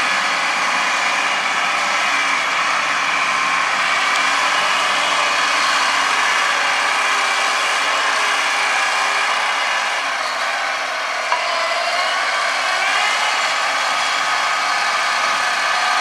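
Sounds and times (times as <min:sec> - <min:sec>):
crawler tractor running under load: 0:00.0 - 0:16.0.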